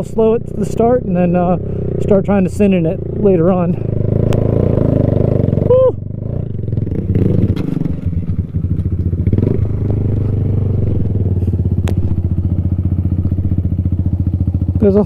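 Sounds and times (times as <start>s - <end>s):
chassis clattering over bumps: 0.0s - 15.0s
motorcycle engine running: 0.0s - 15.0s.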